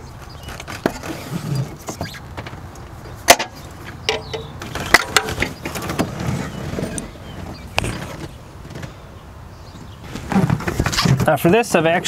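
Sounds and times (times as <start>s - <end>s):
hand tools clicking and knocking: 3.3s - 6.0s.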